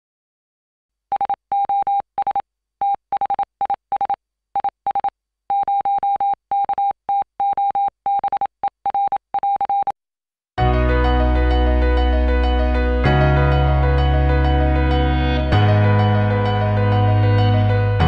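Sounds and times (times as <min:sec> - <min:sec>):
morse code beeps: 0:01.1 - 0:10.0
music: 0:10.6 - 0:18.0.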